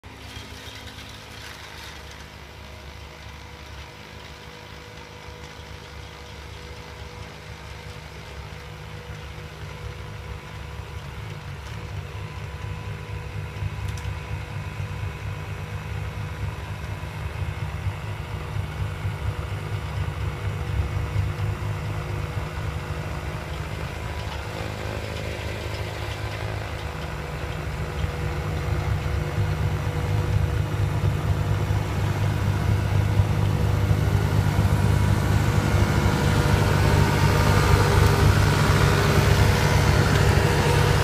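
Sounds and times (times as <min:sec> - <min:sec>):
diesel engine running: 0:00.0 - 0:41.0
snowblower throwing snow: 0:00.1 - 0:02.9, 0:23.7 - 0:41.0.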